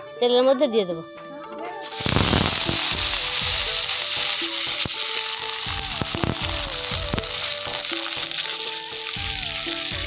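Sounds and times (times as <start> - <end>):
background music: 0.0 - 10.0
fish sizzling in hot oil: 1.8 - 10.0.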